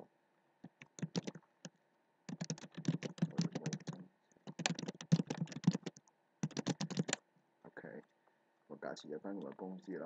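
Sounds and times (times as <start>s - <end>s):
computer keyboard typing: 0.6s - 1.4s, 2.3s - 7.2s.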